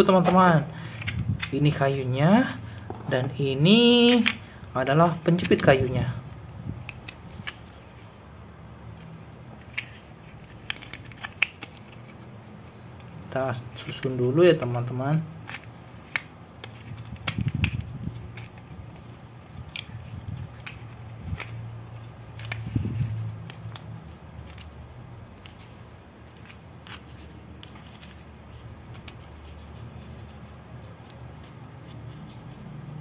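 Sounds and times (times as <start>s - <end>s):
plastic toy parts clicking: 9.6s - 12.2s, 15.4s - 22.8s.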